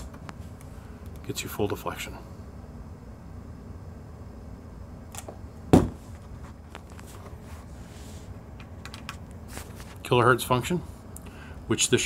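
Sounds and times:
low hum of room tone: 0.0s - 12.0s
sharp knock: 5.7s - 6.0s.

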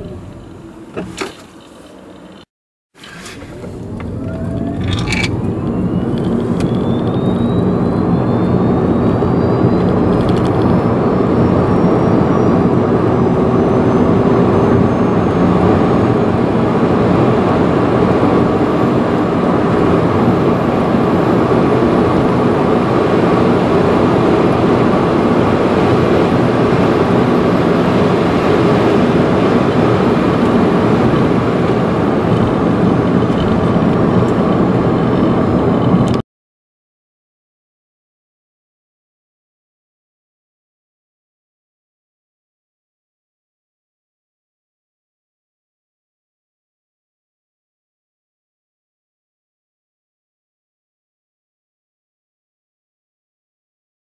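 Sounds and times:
road and wind noise: 0.0s - 36.2s
electric motor whine rising: 3.0s - 16.9s.

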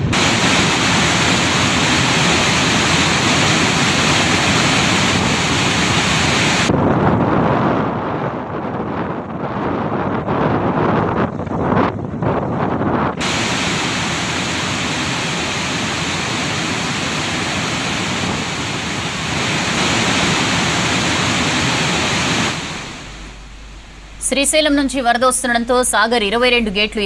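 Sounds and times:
water rushing through spillway: 0.0s - 6.7s, 13.2s - 23.3s.

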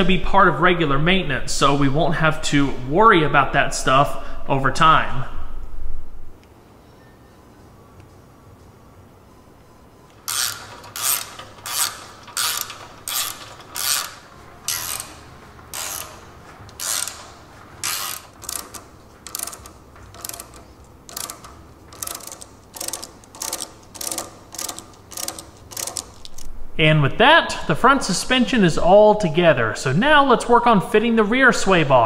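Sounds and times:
ratchet wrench clicking: 10.2s - 26.5s.

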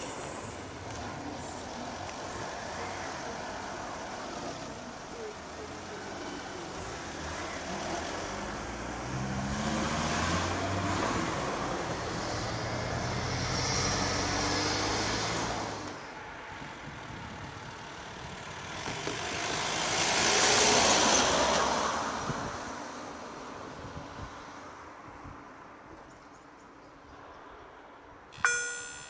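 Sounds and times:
vehicle engine pulling away: 0.0s - 16.0s.

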